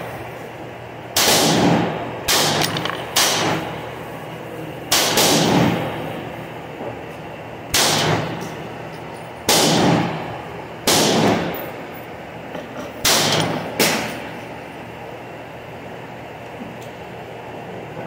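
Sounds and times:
pistol shots echoing: 1.2 - 3.7, 4.9 - 5.9, 7.7 - 8.4, 9.5 - 10.2, 10.8 - 11.6, 13.0 - 14.2.

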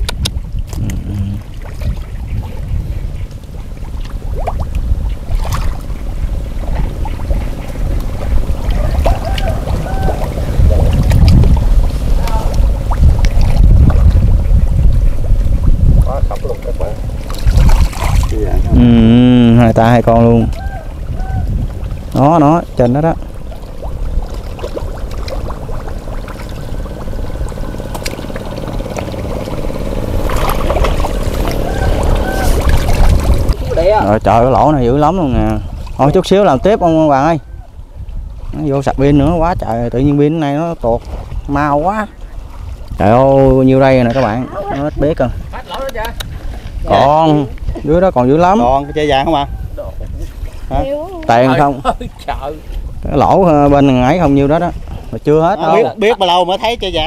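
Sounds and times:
water sloshing and splashing: 0.0 - 18.8, 19.6 - 37.3, 37.9 - 56.4
steady low hum: 0.0 - 36.7
low rumble: 0.0 - 41.7.

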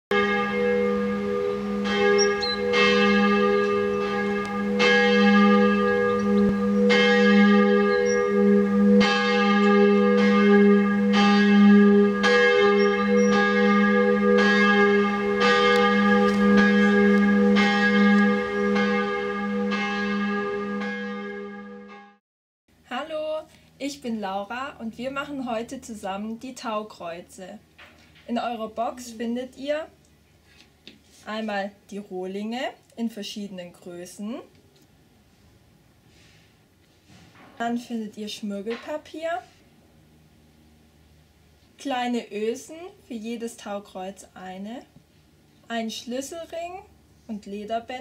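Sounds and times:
church bells ringing: 0.1 - 22.2.

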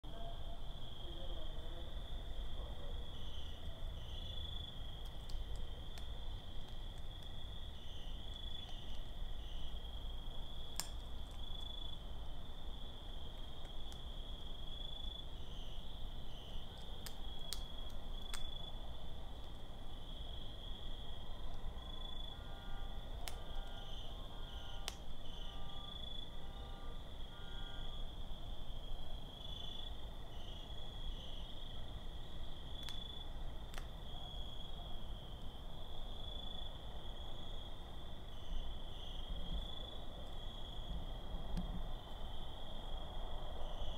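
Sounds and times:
crickets trilling: 0.1 - 43.9
night insect chorus: 0.1 - 43.9
sharp clicks: 5.0 - 7.3.

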